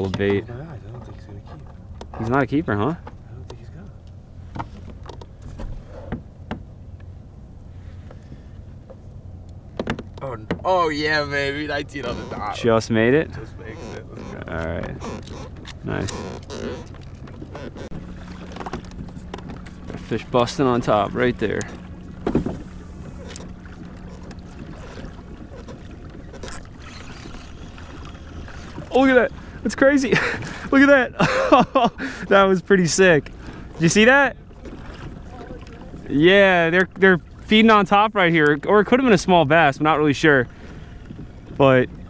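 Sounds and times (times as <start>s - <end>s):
low steady hum: 0.0s - 42.0s
water against kayak hull: 0.0s - 42.0s
light knocks and clicks: 8.8s - 10.6s
wind rumble on microphone: 39.2s - 42.0s.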